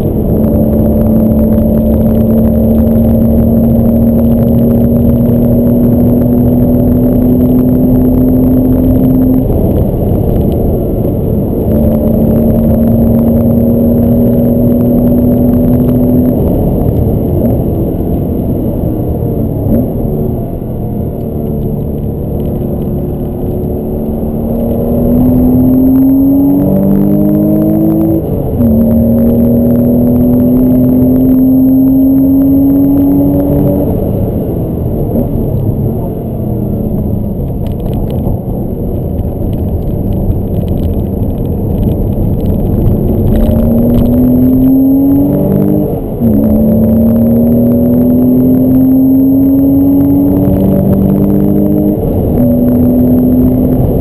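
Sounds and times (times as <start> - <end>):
car engine revving from inside cabin: 0.0 - 38.5, 39.7 - 54.0.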